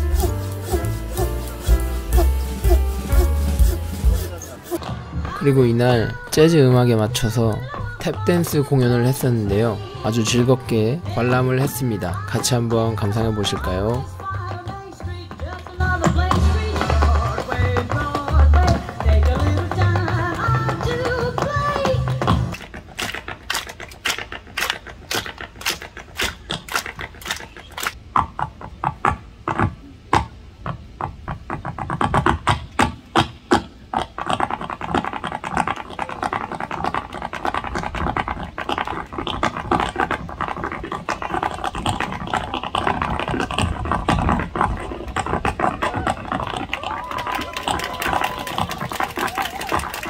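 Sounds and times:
tap shoes on wooden board: 0:00.0 - 0:04.8.

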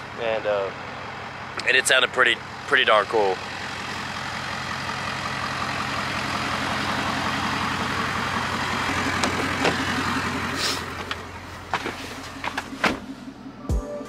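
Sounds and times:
diesel engine idling: 0:00.0 - 0:14.0
car door opening: 0:09.1 - 0:10.0, 0:10.8 - 0:13.3.

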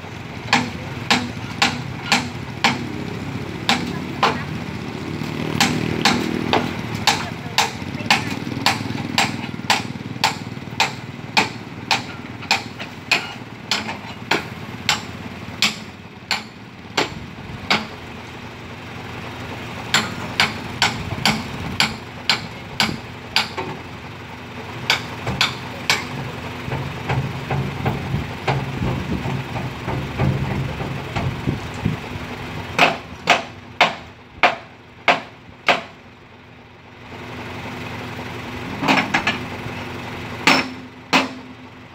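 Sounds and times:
truck engine idling: 0:00.0 - 0:41.9
hammer striking steel tailgate: 0:00.5 - 0:03.0, 0:03.7 - 0:04.5, 0:05.6 - 0:18.0, 0:19.9 - 0:23.8, 0:24.9 - 0:31.4, 0:32.8 - 0:36.0, 0:40.4 - 0:41.6.

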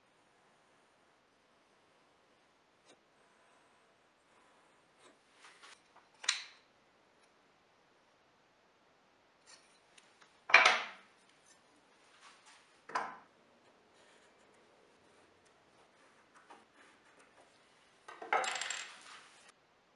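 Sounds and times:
tools scraping and knocking on wood: 0:12.2 - 0:19.5.

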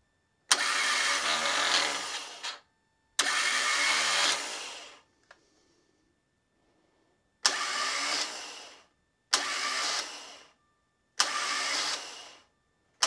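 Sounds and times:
starter motor whirring: 0:00.5 - 0:02.6, 0:03.2 - 0:05.0, 0:07.4 - 0:10.5, 0:11.2 - 0:12.4.

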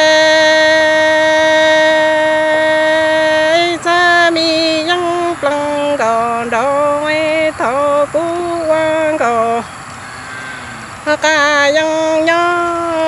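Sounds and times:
person singing solo: 0:00.0 - 0:09.7.

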